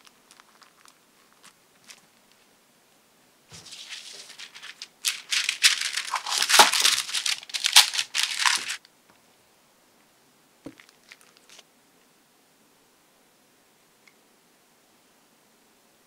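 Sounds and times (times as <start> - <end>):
parchment paper crinkling: 0.0 - 2.5, 3.5 - 8.8, 10.7 - 11.6.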